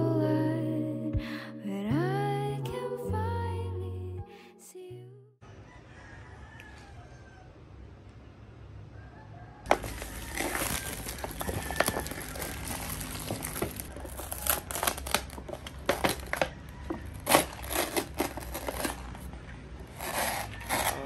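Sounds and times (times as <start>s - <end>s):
lid peeled back rustling: 9.7s - 19.3s
plastic wrap crinkling: 9.7s - 21.0s.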